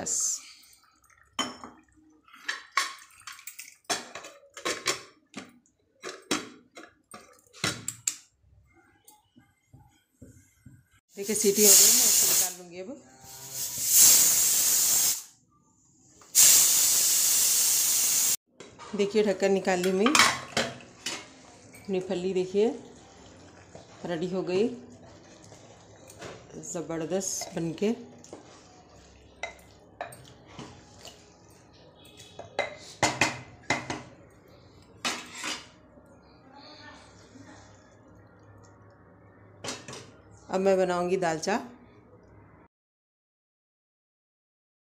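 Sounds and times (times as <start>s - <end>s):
pressure cooker steam hissing: 11.4s - 12.6s, 13.3s - 15.3s, 16.4s - 18.4s
spoon knocking and scraping metal pot: 32.2s - 34.1s.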